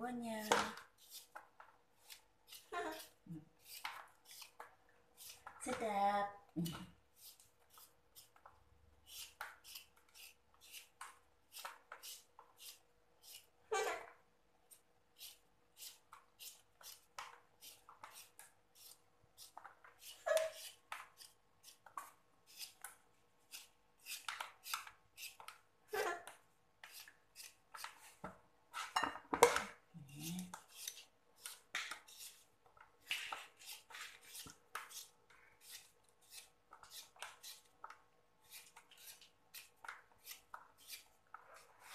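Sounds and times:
vegetable peeler scraping mango: 0:00.4 - 0:01.4, 0:02.0 - 0:04.6, 0:05.2 - 0:05.5, 0:09.0 - 0:14.0, 0:15.2 - 0:22.9, 0:23.5 - 0:26.2, 0:30.0 - 0:32.4, 0:33.1 - 0:37.7, 0:38.4 - 0:41.9.

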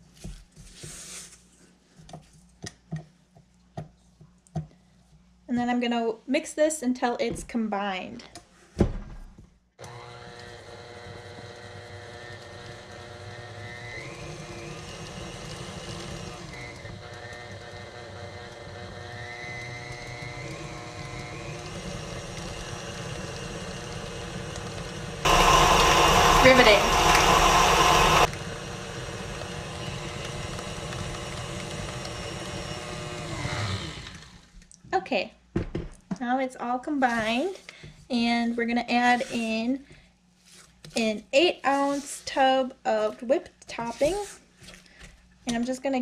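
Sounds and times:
stand mixer running: 0:09.8 - 0:34.5.

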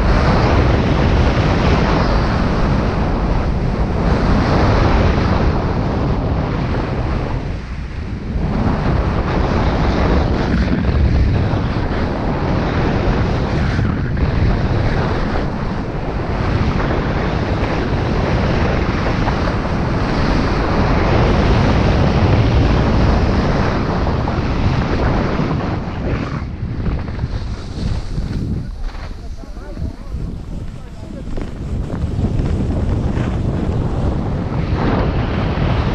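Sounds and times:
wind rushing over microphone: 0:00.0 - 0:35.9
skis scraping over packed snow: 0:08.4 - 0:35.9.

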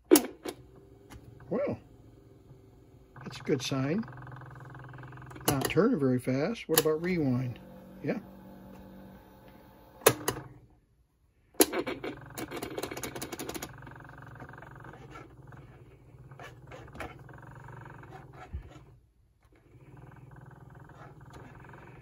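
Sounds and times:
motor hum: 0:00.2 - 0:10.6, 0:11.6 - 0:22.0
rapid clattering clicks: 0:11.6 - 0:18.6.

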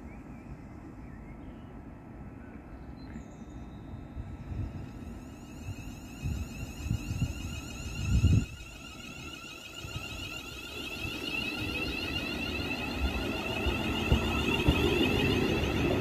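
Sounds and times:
low rumbling gusts: 0:04.0 - 0:16.0
electric train motor whine: 0:04.2 - 0:16.0.

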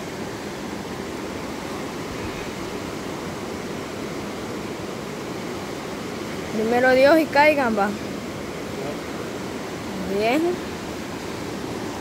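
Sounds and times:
river rushing past rocks: 0:00.0 - 0:12.0.

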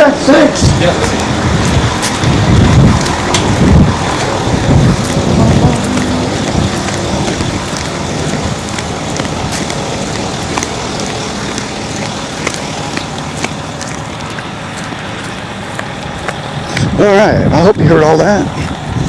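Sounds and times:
wind on microphone: 0:00.6 - 0:14.3, 0:18.5 - 0:19.0.

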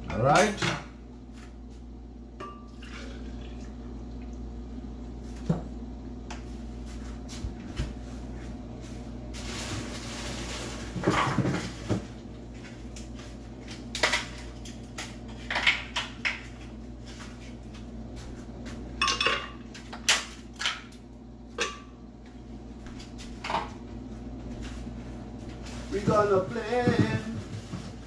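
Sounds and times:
dishes and utensils clinking: 0:19.0 - 0:19.7.

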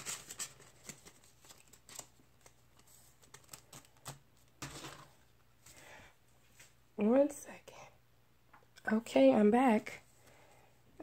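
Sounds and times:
paper money rustling: 0:00.0 - 0:05.1.

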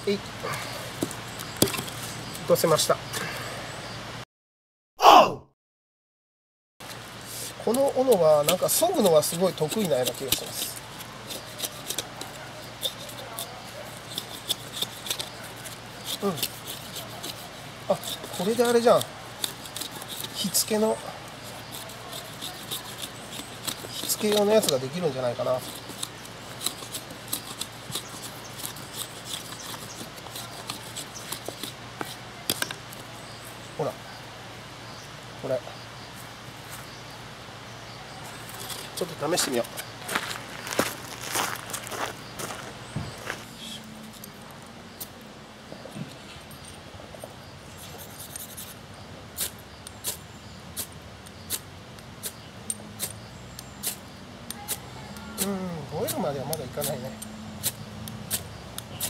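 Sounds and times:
hatchet shaving wood: 0:06.9 - 0:33.1, 0:47.7 - 0:48.8, 0:49.4 - 0:59.0
ferro rod scraping: 0:07.3 - 0:32.8.

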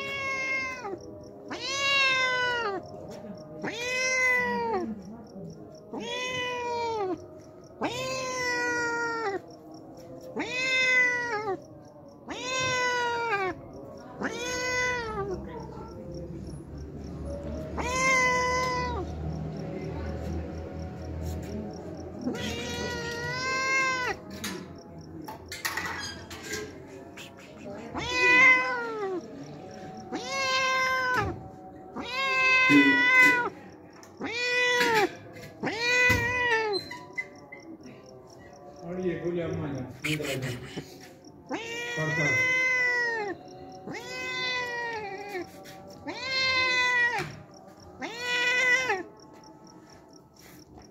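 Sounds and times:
cat meowing: 0:00.0 - 0:16.2, 0:17.1 - 0:38.8, 0:41.3 - 0:49.5.

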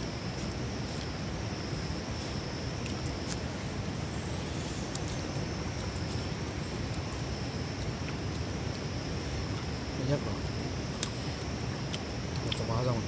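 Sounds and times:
low rumbling background noise: 0:00.0 - 0:13.0
soft clicks of chewing meat: 0:04.8 - 0:09.8, 0:11.0 - 0:12.7.

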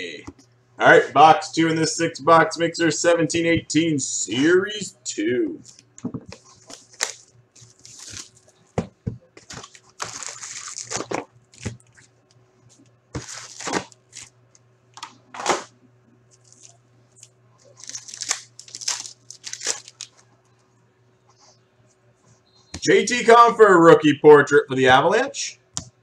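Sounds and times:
steady low hum: 0:00.0 - 0:26.0
wrappers crinkling and tearing: 0:06.4 - 0:08.6, 0:09.4 - 0:12.1, 0:13.2 - 0:14.3, 0:16.3 - 0:20.2.

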